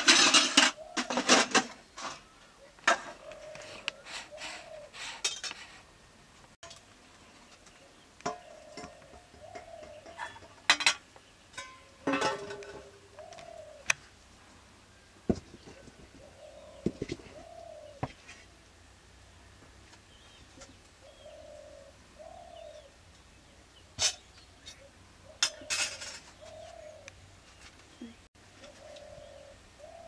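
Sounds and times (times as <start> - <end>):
metal pots clanking: 0.0 - 2.2, 8.2 - 13.1, 25.4 - 26.4
dove cooing: 0.0 - 5.2, 8.2 - 10.9, 12.1 - 14.2, 15.4 - 18.4, 20.6 - 23.0, 24.0 - 27.2, 27.9 - 30.0.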